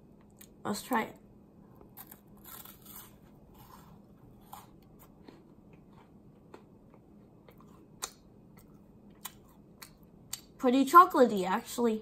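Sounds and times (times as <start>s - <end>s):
chewing wafer cookie: 1.8s - 10.6s.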